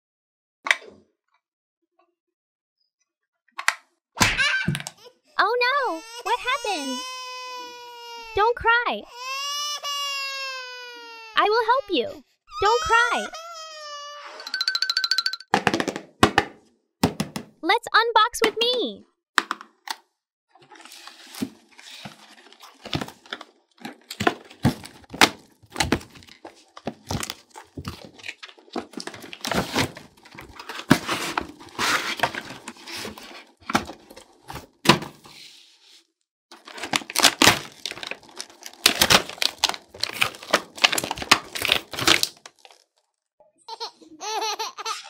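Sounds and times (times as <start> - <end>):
taps and thunks: 15.6 - 17.6
plastic packaging crinkling: 20.6 - 34.4, 36.5 - 43.2.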